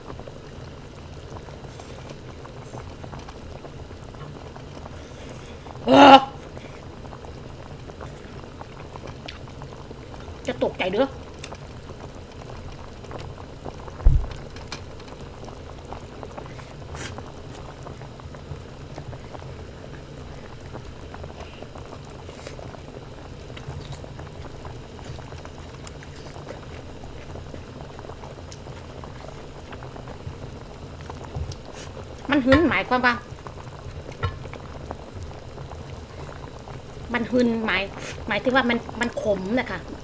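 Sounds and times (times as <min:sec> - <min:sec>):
broth bubbling: 0:00.0 - 0:40.0
low thump: 0:14.0 - 0:14.4.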